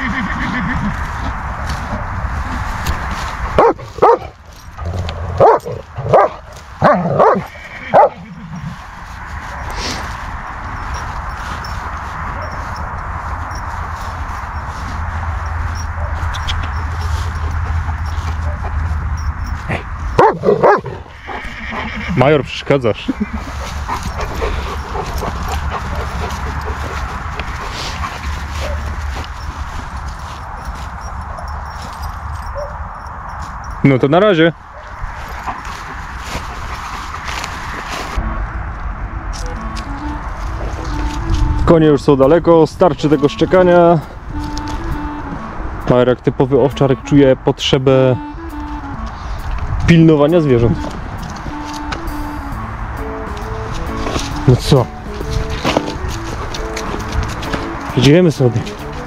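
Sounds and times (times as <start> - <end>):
dog barking: 3.6 - 4.4, 5.4 - 8.2, 12.3 - 12.6, 15.8 - 16.8, 18.0 - 18.8, 20.1 - 21.0, 28.5 - 29.0, 31.2 - 31.8, 32.4 - 32.8, 34.7 - 35.6
steady low rumble: 8.3 - 21.4, 22.4 - 46.4
dog whining and yipping: 23.4 - 29.0, 31.0 - 33.0.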